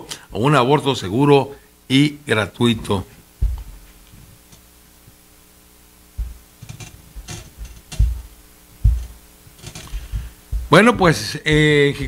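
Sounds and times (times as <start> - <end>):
low electrical hum: 0.0 - 12.0
microphone handling thumps and clicks: 3.1 - 5.2, 6.0 - 12.0.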